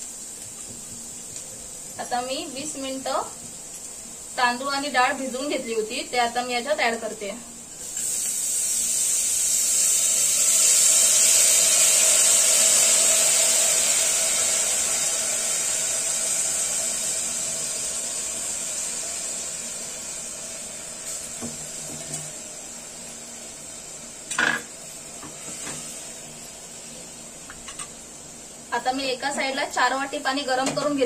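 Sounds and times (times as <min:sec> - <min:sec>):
rice sizzling in hot ghee: 0:00.0 - 0:31.0.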